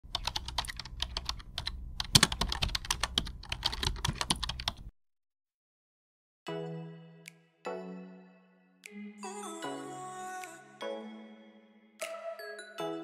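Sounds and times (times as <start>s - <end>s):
keyboard typing clicks: 0.1s - 4.9s.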